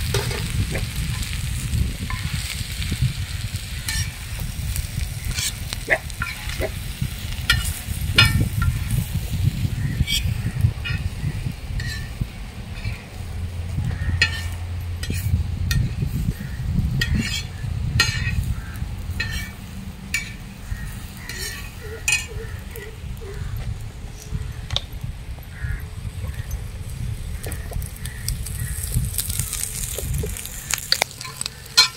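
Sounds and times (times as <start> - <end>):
metal spatula scraping iron pan: 0.0 - 1.4, 3.8 - 4.3, 5.2 - 6.8, 7.4 - 9.0, 9.9 - 13.2, 13.9 - 22.9, 31.2 - 31.9
low rumble: 0.0 - 31.9.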